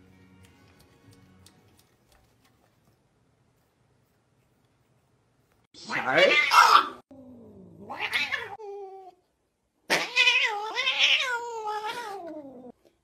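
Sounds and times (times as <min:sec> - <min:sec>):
cat yowling: 0:05.8 - 0:07.0, 0:07.9 - 0:08.6, 0:09.9 - 0:12.7.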